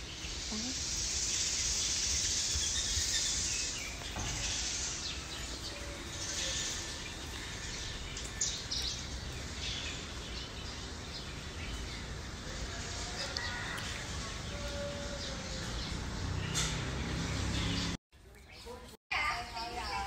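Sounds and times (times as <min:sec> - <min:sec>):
hiss: 0:00.0 - 0:07.1
birds chirping: 0:00.0 - 0:20.0.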